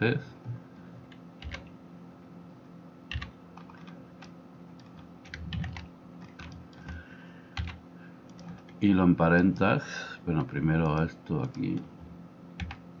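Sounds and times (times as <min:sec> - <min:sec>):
faint steady hum: 0:00.0 - 0:13.0
laptop keys clicking: 0:01.1 - 0:01.7, 0:03.1 - 0:08.8, 0:10.4 - 0:11.9, 0:12.6 - 0:12.8.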